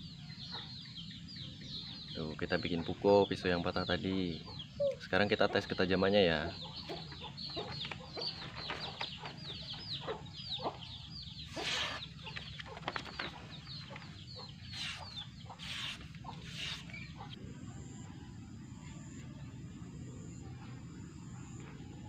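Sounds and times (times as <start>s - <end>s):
birds chirping: 0.0s - 22.0s
knife slicing through paper: 11.5s - 12.1s, 15.6s - 16.9s.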